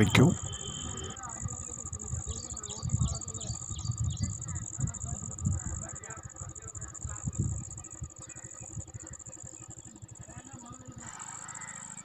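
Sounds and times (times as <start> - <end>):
high-pitched insect drone: 0.0 - 12.0
wind buffeting microphone: 1.4 - 9.1.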